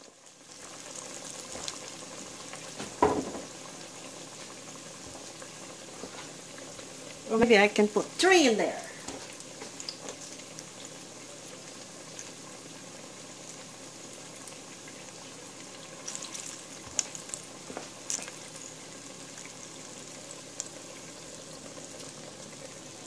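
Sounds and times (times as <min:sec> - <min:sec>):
hot oil sizzling and bubbling: 0:00.0 - 0:23.0
oil popping and crackling: 0:00.0 - 0:23.0.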